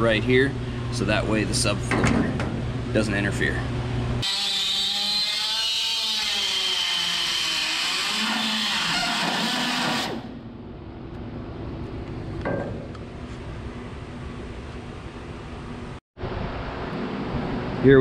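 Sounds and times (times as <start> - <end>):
die grinder whining cutting steel: 4.2 - 10.3.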